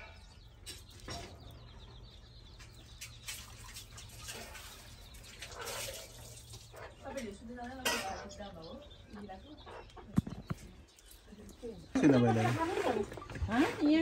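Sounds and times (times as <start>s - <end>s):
wet squelches of limes squeezed: 3.0s - 7.0s.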